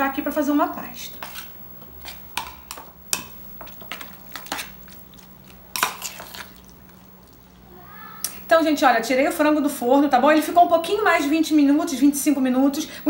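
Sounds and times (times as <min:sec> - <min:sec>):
metal spoon scraping ceramic bowl: 0:01.1 - 0:02.8, 0:03.7 - 0:04.8.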